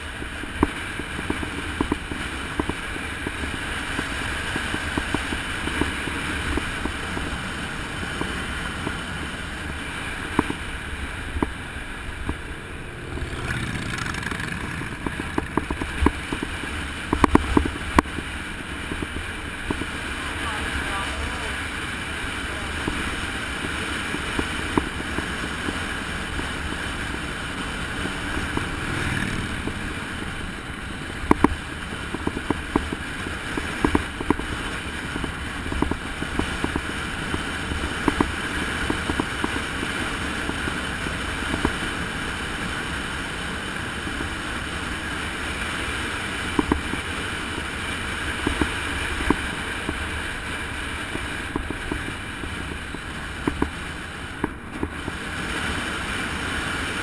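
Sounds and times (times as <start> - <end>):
wind and road noise: 0.0 - 57.0.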